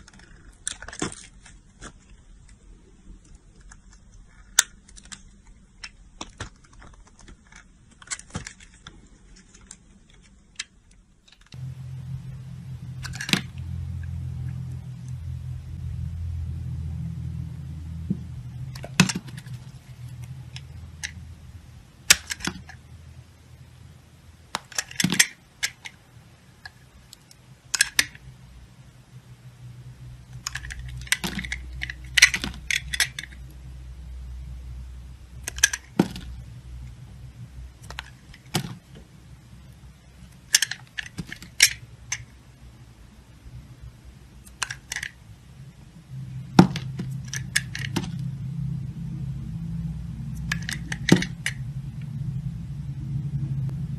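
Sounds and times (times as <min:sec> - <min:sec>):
low hum: 0:10.8 - 0:25.0, 0:25.6 - 0:53.9.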